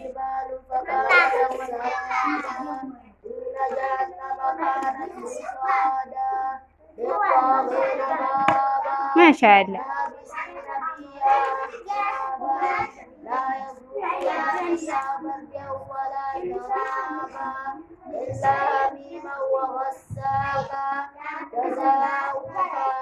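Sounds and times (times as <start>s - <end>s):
children chanting: 0.0s - 23.0s.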